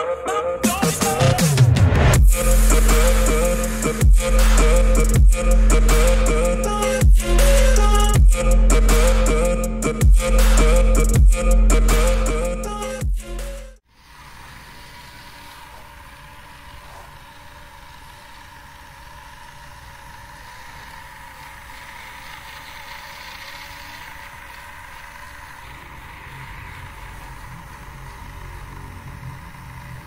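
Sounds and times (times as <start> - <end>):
music: 0.0 - 13.8
toy motors whining: 13.9 - 30.0.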